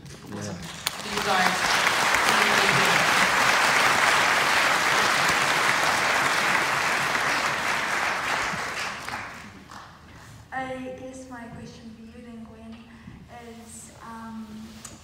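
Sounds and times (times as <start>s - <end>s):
audience applauding: 0.5s - 10.0s.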